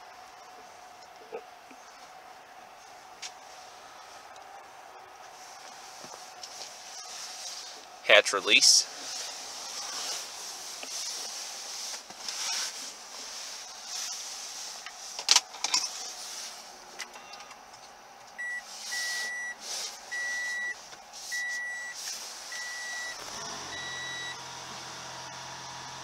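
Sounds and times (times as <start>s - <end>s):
car dashboard chime beeping: 18.4s - 20.8s, 21.4s - 22.0s, 22.6s - 24.4s.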